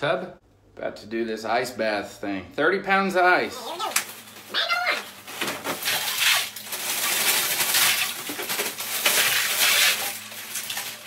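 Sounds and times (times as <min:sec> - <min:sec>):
ice cubes pouring into water: 0:05.8 - 0:11.0.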